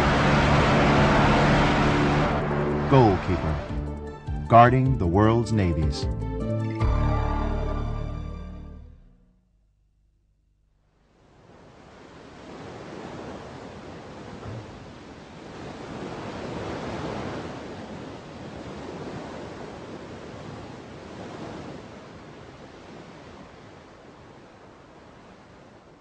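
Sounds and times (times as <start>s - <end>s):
rushing surf-like noise: 0.0s - 3.7s.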